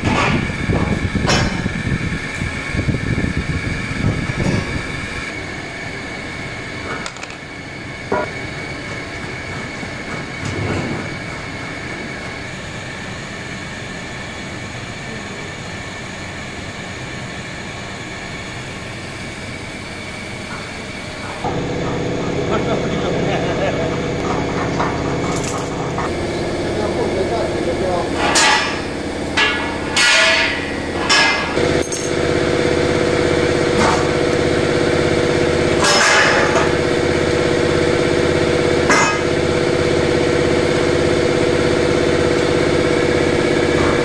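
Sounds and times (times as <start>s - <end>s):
mechanical hum: 0.0s - 44.0s
high whine: 20.5s - 44.0s.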